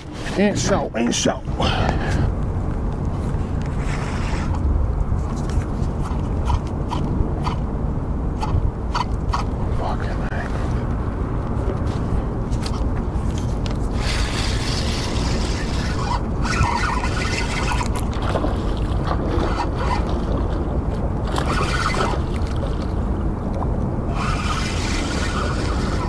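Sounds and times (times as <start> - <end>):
wind rumbling on microphone: 0.0 - 26.0
water lapping against boat hull: 12.5 - 26.0
water splashing: 14.2 - 26.0.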